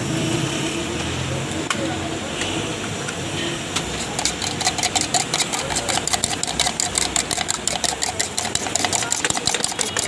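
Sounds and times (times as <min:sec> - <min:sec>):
spoon clinking against metal mug: 0:04.0 - 0:10.0.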